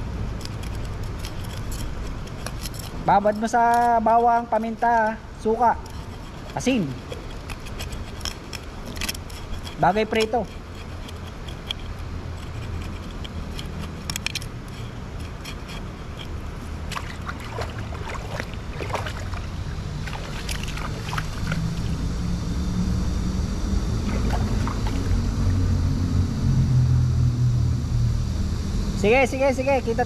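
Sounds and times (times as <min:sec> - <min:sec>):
motor engine droning: 0:08.6 - 0:30.0.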